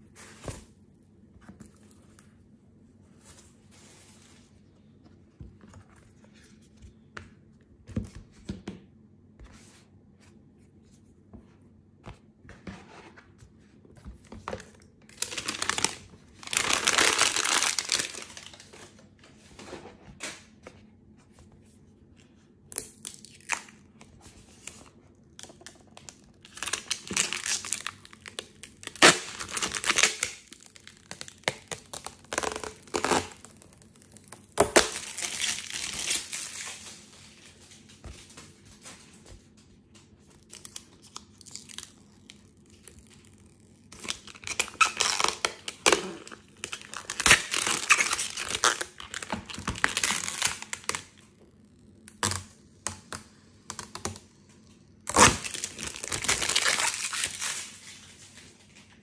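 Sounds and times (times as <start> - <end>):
plastic wrap crinkling: 14.1 - 19.2, 24.5 - 53.0, 54.8 - 59.0.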